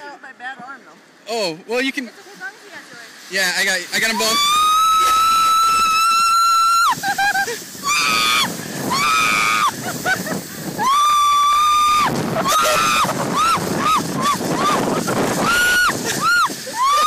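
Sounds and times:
steady rushing noise: 0:00.0 - 0:17.0
people screaming: 0:04.0 - 0:17.0.

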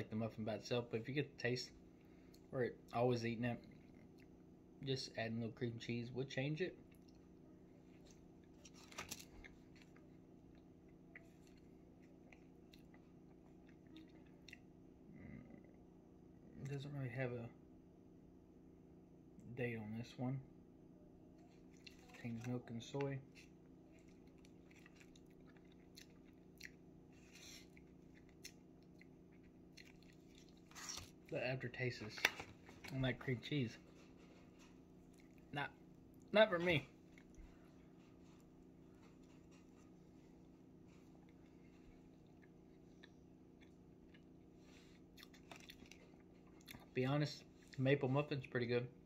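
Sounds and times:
steady low hum: 0:00.0 - 0:49.0
faint chewing: 0:03.6 - 0:04.6, 0:06.8 - 0:15.9, 0:21.4 - 0:31.4, 0:33.7 - 0:36.3, 0:36.9 - 0:47.8.

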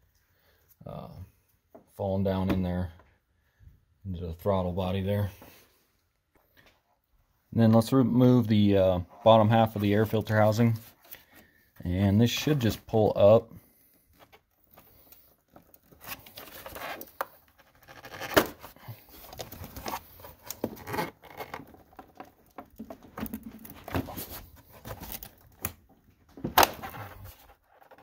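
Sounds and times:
plastic knocks and scraping: 0:14.2 - 0:28.0.

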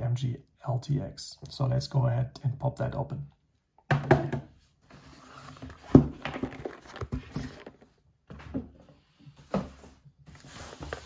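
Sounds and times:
cardboard box handling taps and scrapes: 0:04.9 - 0:08.7.

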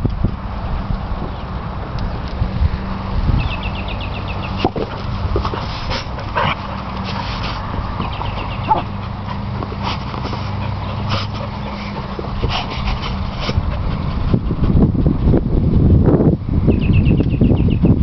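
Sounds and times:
rustling on grass: 0:04.4 - 0:13.7.

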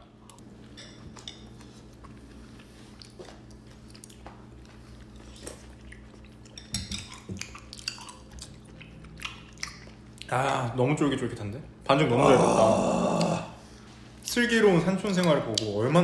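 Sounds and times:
steady low hum: 0:00.0 - 0:16.0
quiet chewing: 0:00.1 - 0:10.3.

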